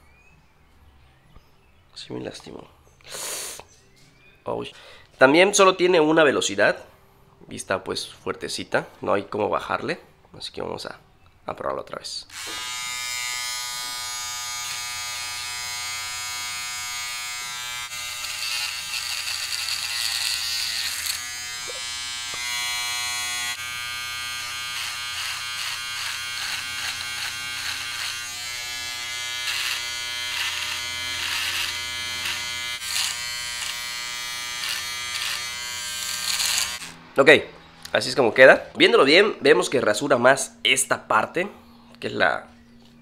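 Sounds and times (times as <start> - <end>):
electric shaver buzzing: 12.3 - 37.0
rasp of hairs being cut: 12.3 - 37.0.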